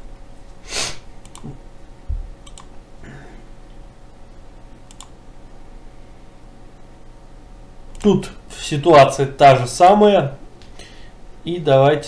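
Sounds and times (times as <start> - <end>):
short hiss: 0.6 - 1.0
computer mouse clicks: 1.2 - 1.6, 2.4 - 2.7, 4.9 - 5.1, 7.9 - 8.1.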